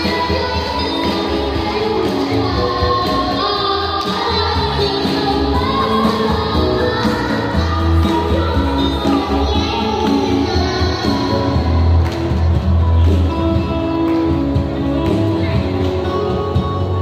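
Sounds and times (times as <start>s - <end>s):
children singing into microphones: 0.0s - 12.7s
instrumental accompaniment with bass: 0.0s - 17.0s.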